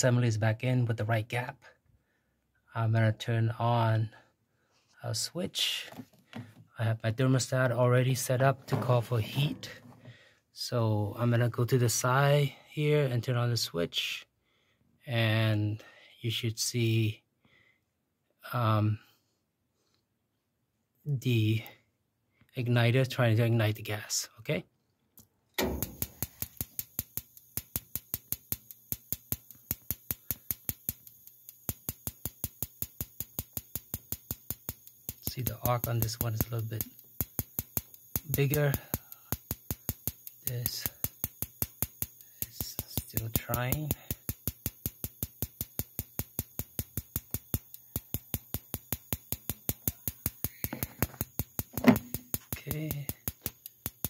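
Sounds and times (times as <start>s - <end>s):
spark igniter ticking: 25.6s - 54.0s.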